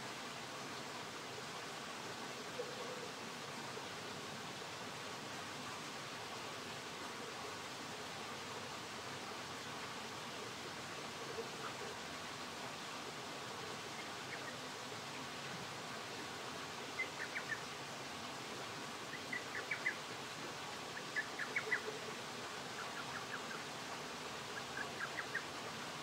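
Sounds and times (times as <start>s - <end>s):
small stream hissing: 0.0s - 26.0s.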